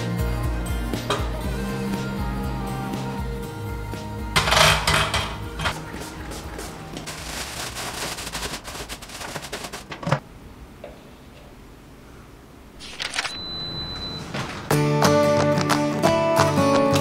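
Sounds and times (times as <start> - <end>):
plastic bin liner crackling: 5.8 - 10.2
steady high beep: 12.8 - 14.4.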